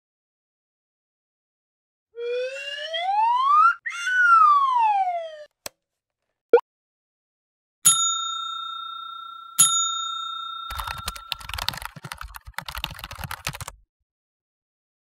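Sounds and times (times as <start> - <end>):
slide whistle: 2.2 - 5.5
bell ringing: 7.9 - 11.9.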